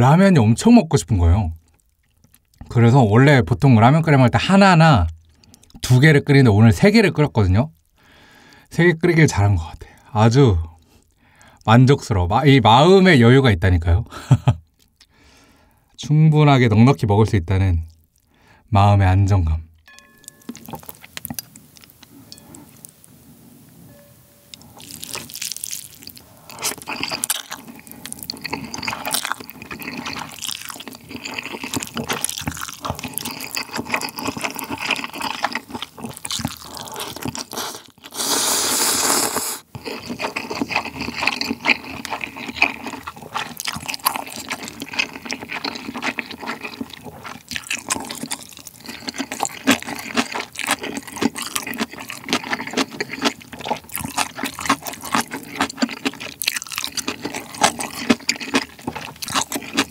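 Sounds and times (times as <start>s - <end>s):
slurping and chewing noodles: 20.4s - 23.1s, 24.5s - 59.9s
long loud slurp of broth: 37.5s - 39.7s.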